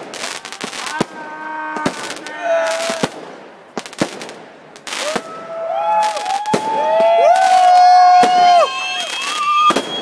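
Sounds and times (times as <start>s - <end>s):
firework bangs: 0.0s - 10.0s
firework whistling: 4.2s - 10.0s.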